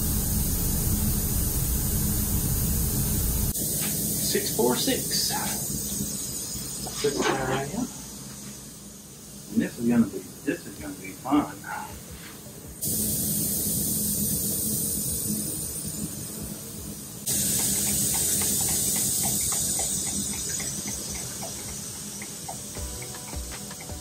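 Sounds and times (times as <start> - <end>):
loud steady hiss: 0.0 - 24.0
stick tapping in a cup: 17.6 - 24.0.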